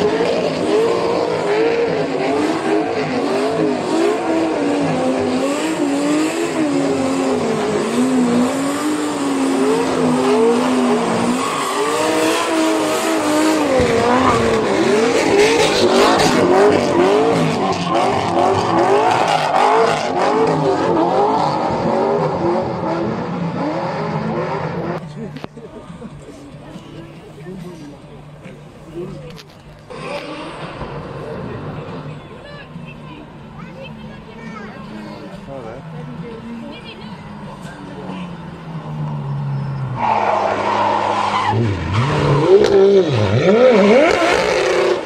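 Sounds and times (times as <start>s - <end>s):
car engine revving: 0.0s - 26.2s, 28.1s - 32.2s, 34.9s - 45.0s
tyres screeching: 0.5s - 21.3s, 37.3s - 45.0s.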